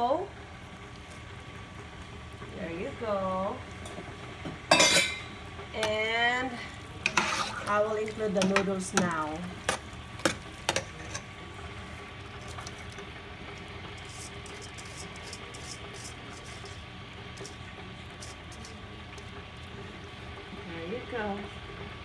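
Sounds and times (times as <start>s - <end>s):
pot simmering and bubbling: 0.0s - 22.0s.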